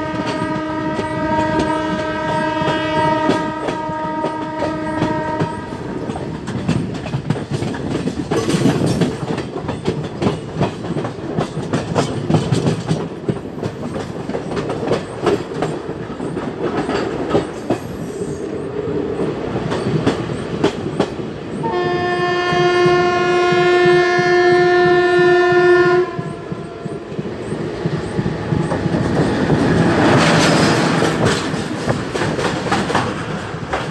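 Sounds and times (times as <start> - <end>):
locomotive horn blast: 0.0 - 6.0, 21.6 - 27.0
train wheels clicking over rail joints: 0.0 - 25.3, 26.0 - 33.9
passing train rush: 0.0 - 33.9.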